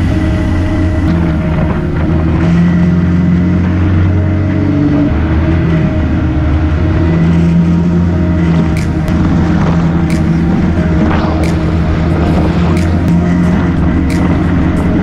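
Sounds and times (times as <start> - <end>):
drivetrain whine: 0.0 - 15.0
vehicle engine cruising: 0.0 - 15.0
wind noise: 0.0 - 15.0.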